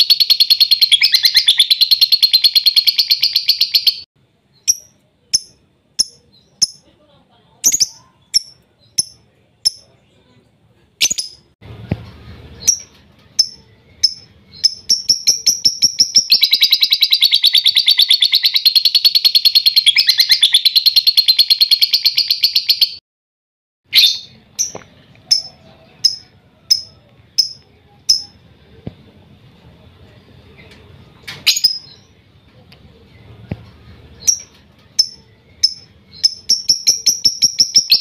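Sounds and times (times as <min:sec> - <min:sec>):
rapid chattering bird trill: 0:00.0 - 0:04.0, 0:04.6 - 0:06.9, 0:07.6 - 0:09.9, 0:12.6 - 0:23.0, 0:24.0 - 0:28.4, 0:34.2 - 0:38.0
bird chirps: 0:00.0 - 0:06.9, 0:07.6 - 0:10.4, 0:11.0 - 0:11.5, 0:12.6 - 0:23.0, 0:23.9 - 0:28.4, 0:34.2 - 0:38.0.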